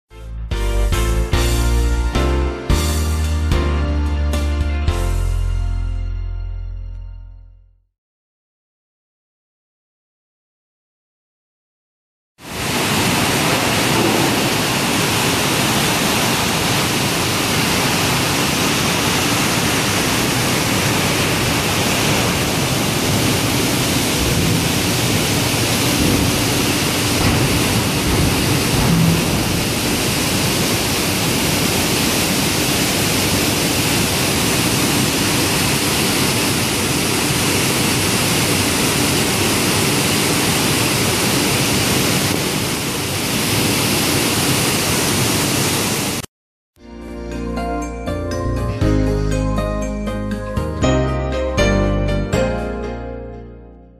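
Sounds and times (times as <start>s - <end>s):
rolling mill and water jets rushing: 12.4s - 46.3s.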